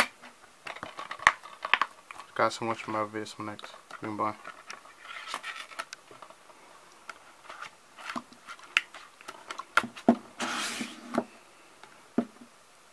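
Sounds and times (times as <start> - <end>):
case sliding into cardboard sleeve: 9.9 - 11.3.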